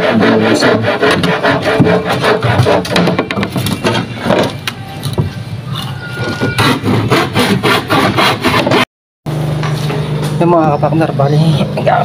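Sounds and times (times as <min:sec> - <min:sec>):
handsaw cutting timber: 0:00.0 - 0:04.0, 0:06.4 - 0:08.9.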